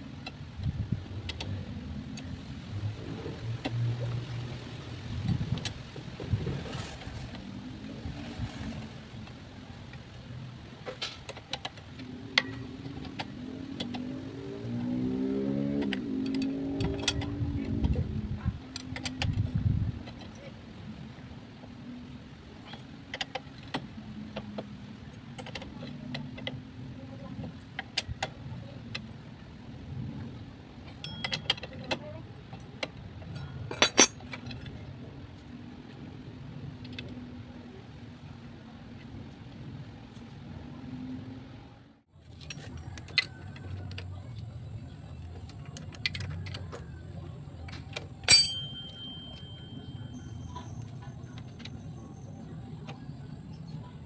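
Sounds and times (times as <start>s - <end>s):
metal bar clinking on clutch: 15.7s - 18.0s, 30.9s - 32.2s, 33.3s - 34.8s, 47.6s - 51.8s
ringing metal clank: 31.0s - 31.6s, 33.7s - 34.2s, 48.3s - 50.8s.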